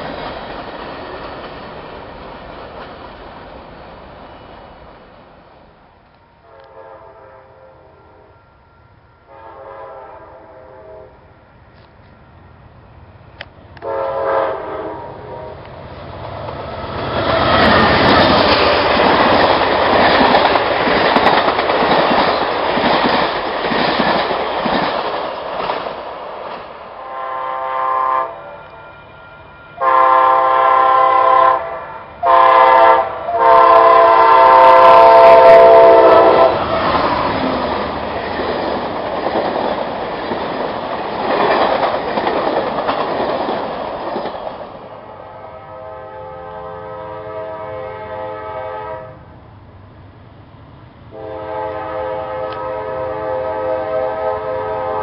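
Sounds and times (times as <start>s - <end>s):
train wheels rumbling on rails: 0.0s - 7.0s, 9.4s - 27.4s, 28.5s - 48.6s
train horn blasts: 6.4s - 11.4s, 13.8s - 15.7s, 27.0s - 36.9s, 45.1s - 49.3s, 51.1s - 55.0s.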